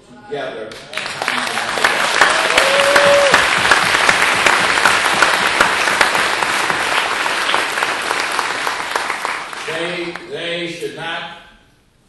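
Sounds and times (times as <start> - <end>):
audience applauding: 0.7 - 10.3.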